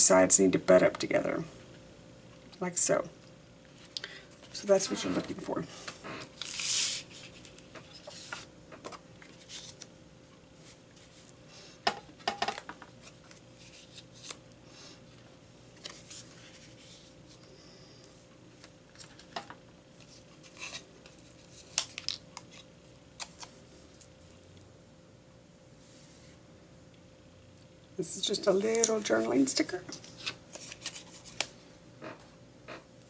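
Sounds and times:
paper rustling and sliding: 5.0s - 8.5s, 30.0s - 31.5s.

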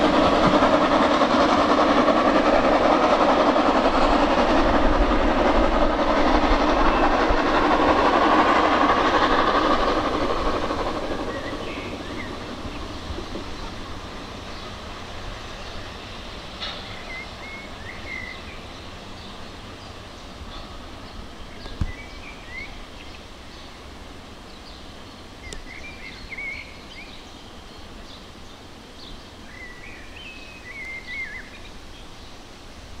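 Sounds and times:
songbirds chirping: 6.4s - 32.6s.

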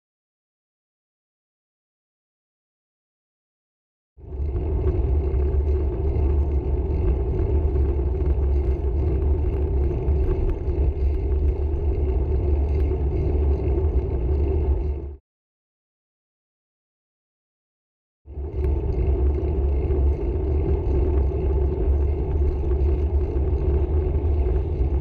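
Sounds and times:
road and wind noise: 4.2s - 15.2s, 18.3s - 25.0s.

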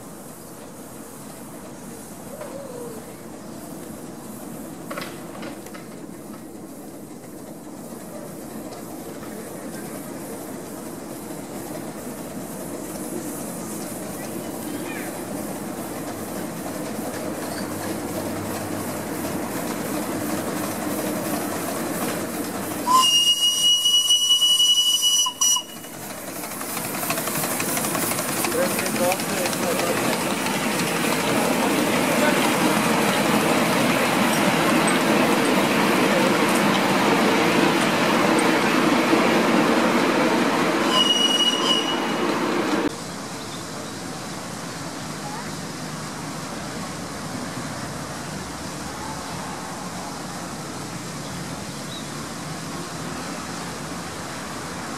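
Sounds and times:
miniature steam locomotive running: 0.0s - 54.9s
small train wheels rumbling on rail: 0.0s - 54.9s
high-pitched steam whistle: 22.8s - 26.0s, 40.7s - 42.6s
wheel squeal: 40.8s - 42.4s.

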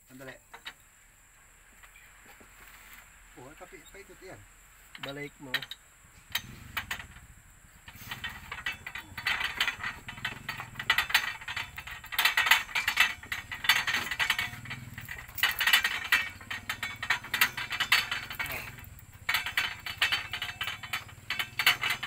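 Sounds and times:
metallic clicking and ratcheting: 4.9s - 22.0s.

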